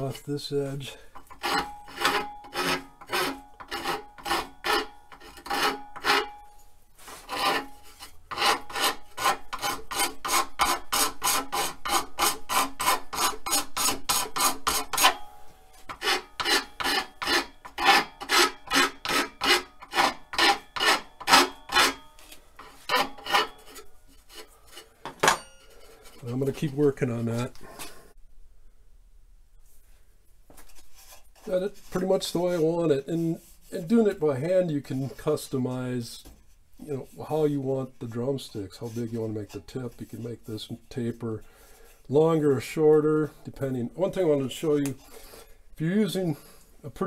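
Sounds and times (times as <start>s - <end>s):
hand file rasping on wood: 1.2s - 6.4s, 7.0s - 15.2s, 15.9s - 24.8s.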